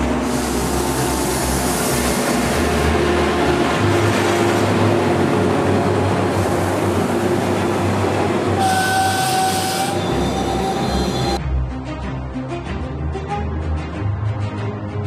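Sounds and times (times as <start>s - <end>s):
diesel train engine rumble: 0.0s - 11.4s.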